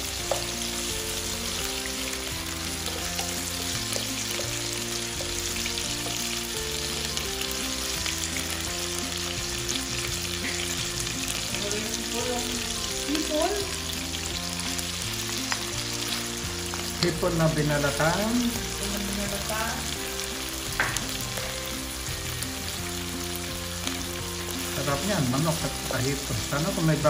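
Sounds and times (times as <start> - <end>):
food sizzling in hot oil: 0.0 - 27.0
wooden spatula stirring: 0.2 - 9.0.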